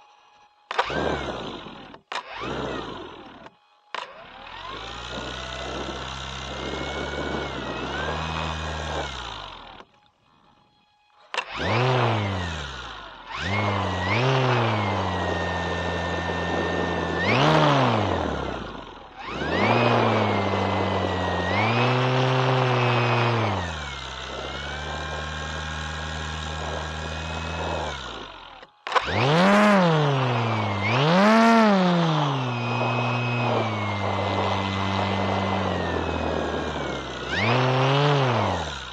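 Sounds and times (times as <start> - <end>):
model plane electric motor and propeller: 0.0 - 38.9.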